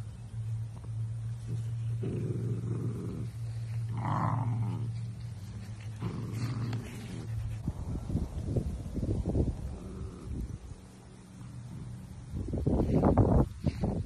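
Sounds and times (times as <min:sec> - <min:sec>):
puppy growling: 0:01.4 - 0:07.6, 0:09.6 - 0:10.7.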